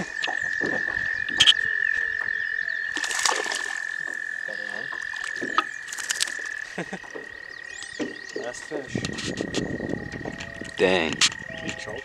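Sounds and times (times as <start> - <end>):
toad trilling: 0.0 - 12.0
fish splashing into water: 2.9 - 4.2, 5.0 - 6.6.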